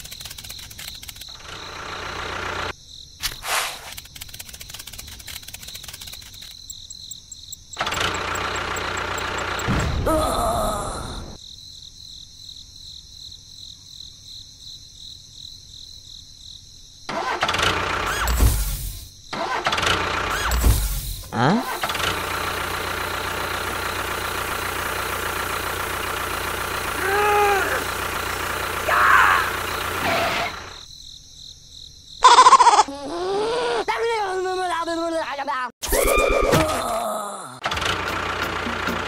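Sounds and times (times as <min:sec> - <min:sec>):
engine starting and rumbling: 0:01.2 - 0:02.7, 0:07.7 - 0:10.1, 0:17.1 - 0:30.9, 0:37.6 - 0:39.0
loud explosion: 0:09.7 - 0:10.4.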